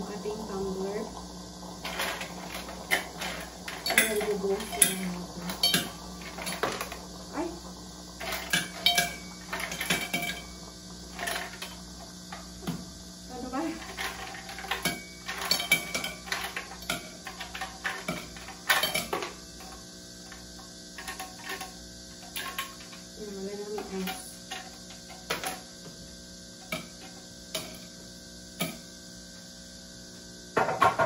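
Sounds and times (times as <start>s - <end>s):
steady low hum: 0.0s - 31.0s
ice cubes clinking in a glass: 1.8s - 7.0s, 13.7s - 19.3s.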